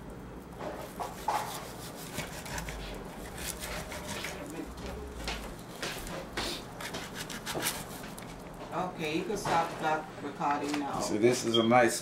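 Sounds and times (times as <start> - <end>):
knife cutting raw chicken: 0.9 - 4.5, 6.4 - 8.3.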